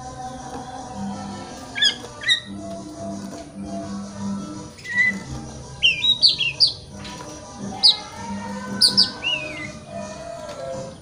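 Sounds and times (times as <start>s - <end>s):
bird singing: 1.2s - 11.0s.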